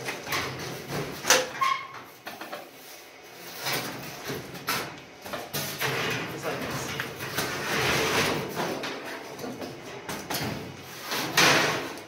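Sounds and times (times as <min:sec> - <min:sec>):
sheet metal panel clattering: 0:10.4 - 0:12.0.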